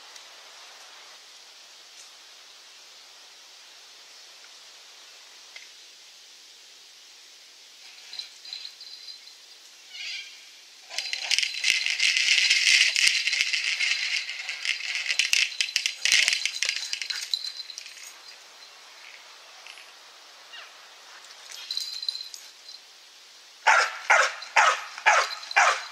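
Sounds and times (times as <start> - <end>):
rattling and clatter of ball on rope: 10.8 - 18.4.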